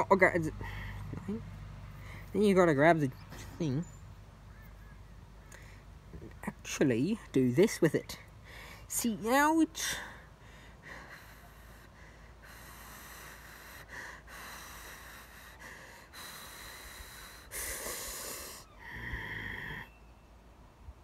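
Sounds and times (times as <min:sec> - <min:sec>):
person breathing in and out: 0:09.9 - 0:19.9.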